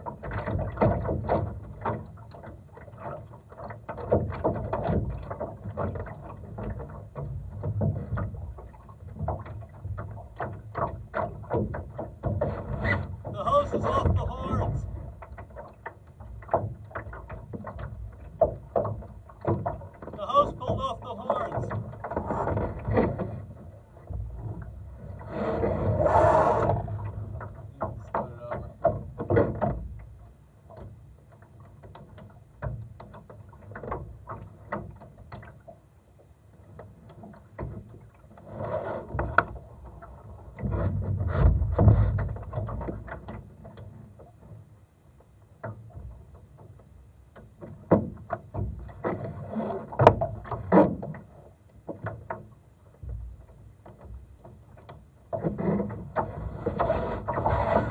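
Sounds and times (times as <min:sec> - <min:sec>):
clicks and knocks from boat hull: 0:00.0 - 0:25.9, 0:26.6 - 0:57.9
rushing water or wind: 0:00.0 - 0:30.9.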